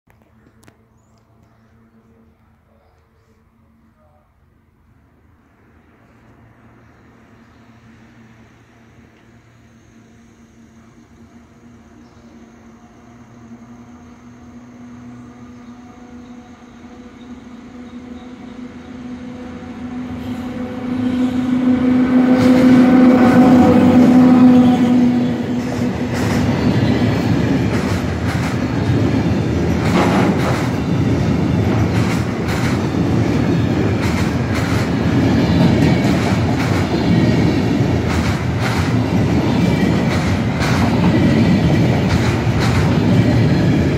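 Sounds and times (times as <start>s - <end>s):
electric locomotive hum: 0.2s - 43.9s
freight train rumbling by: 1.3s - 43.9s
wheels clacking over rail joints: 25.2s - 43.9s.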